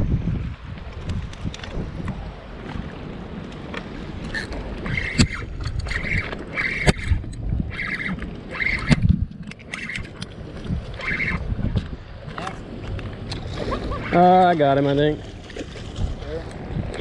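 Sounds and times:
wind and water rumbling: 0:00.0 - 0:17.0.

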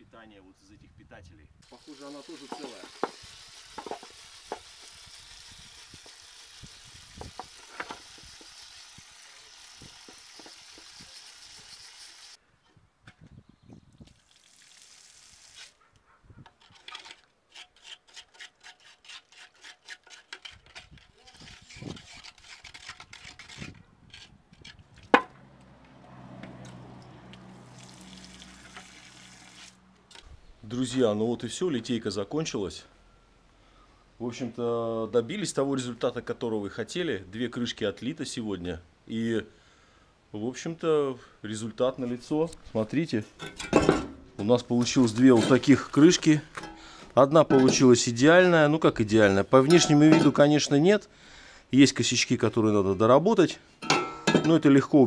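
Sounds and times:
sand brushed and scraped by hand: 0:01.6 - 0:12.4
water spray hissing: 0:01.6 - 0:12.4, 0:14.2 - 0:15.8, 0:27.5 - 0:29.8
knife scraping sand off metal: 0:01.7 - 0:04.7, 0:16.6 - 0:24.4.

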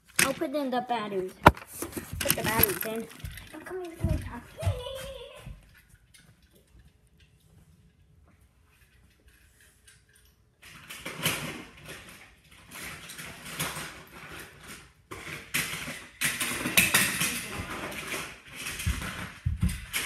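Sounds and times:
small hard objects clattering: 0:00.0 - 0:00.6, 0:01.3 - 0:04.2, 0:11.0 - 0:20.0.

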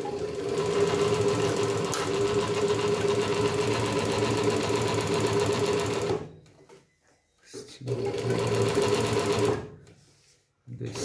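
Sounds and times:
sewing machine stitching: 0:00.0 - 0:06.3, 0:07.8 - 0:09.8.

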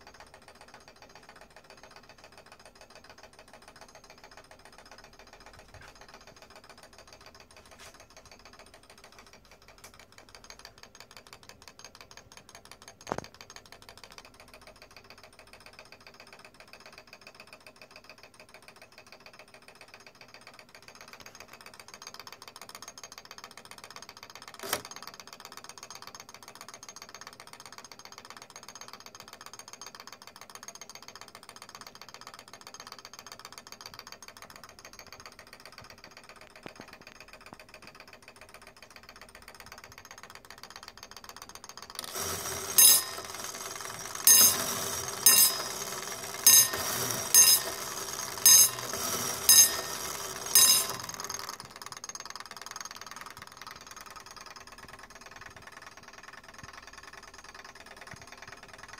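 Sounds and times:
clock bell striking: 0:42.4 - 0:51.5.

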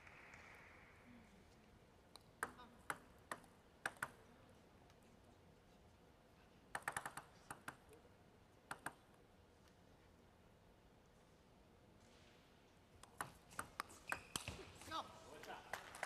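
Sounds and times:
table tennis ball clicking: 0:02.1 - 0:04.3, 0:06.7 - 0:07.9, 0:08.7 - 0:09.0.

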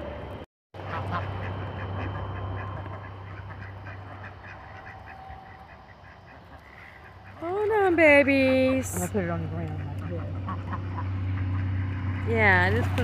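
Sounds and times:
low steady hum: 0:00.0 - 0:13.0
ducks quacking: 0:00.8 - 0:13.0.

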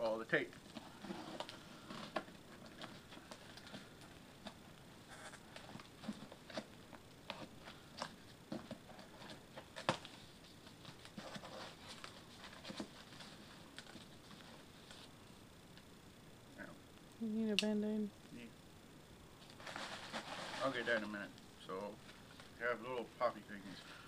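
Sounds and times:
cardboard scraping and crackling: 0:00.7 - 0:15.1, 0:19.4 - 0:21.2.

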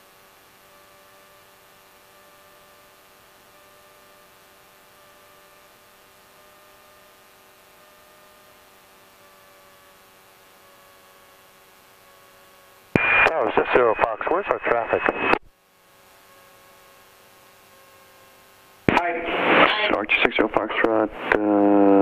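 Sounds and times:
electrical hum and hiss: 0:00.0 - 0:22.0
thin whine: 0:00.0 - 0:22.0.

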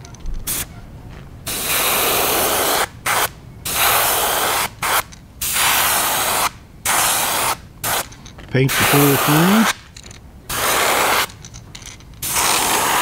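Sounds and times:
airbrush hissing air: 0:01.5 - 0:08.0, 0:08.8 - 0:09.7, 0:10.5 - 0:11.4, 0:12.2 - 0:13.0.

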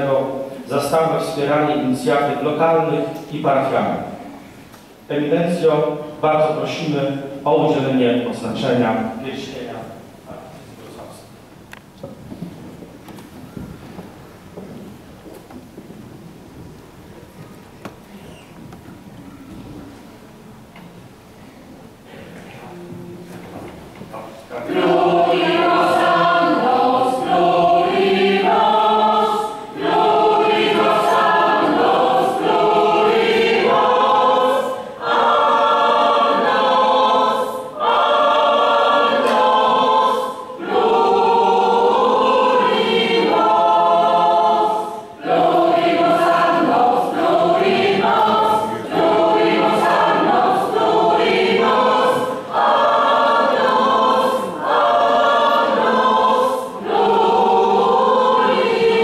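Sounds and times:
choir singing a hymn: 0:00.0 - 0:11.4, 0:24.2 - 0:59.0.

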